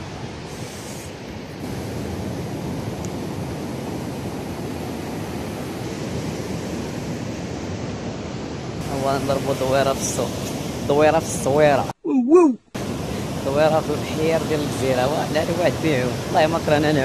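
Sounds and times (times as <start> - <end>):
ocean surf breaking on sand: 0.0 - 11.9, 12.8 - 17.0
wind on microphone: 0.0 - 17.0.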